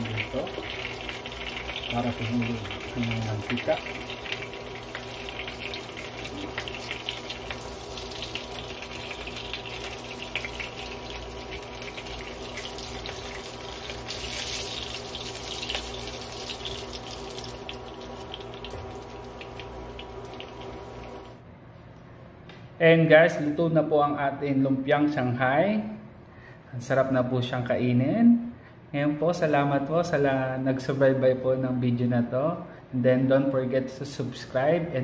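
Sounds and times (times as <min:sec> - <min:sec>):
food sizzling in hot oil: 0:00.0 - 0:21.4.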